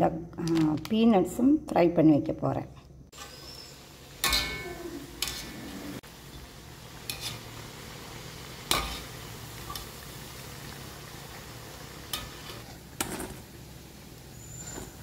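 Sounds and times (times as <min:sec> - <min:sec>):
deep-frying sizzle: 0:03.1 - 0:15.0.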